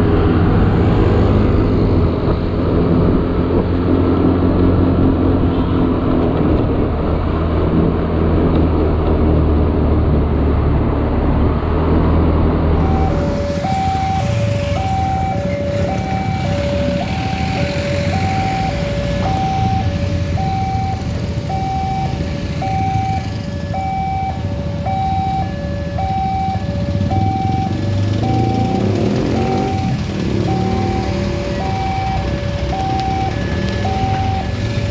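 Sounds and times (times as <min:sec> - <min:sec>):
low rumble of vehicle engines: 0:00.0 - 0:34.9
level crossing two-tone alarm: 0:12.8 - 0:34.9.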